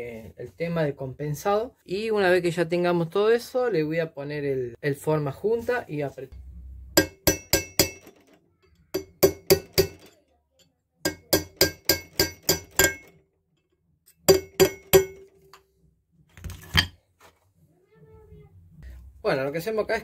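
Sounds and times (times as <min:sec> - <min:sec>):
hammer tapping on metal: 0:07.0 - 0:10.2, 0:11.1 - 0:13.2, 0:14.1 - 0:15.6.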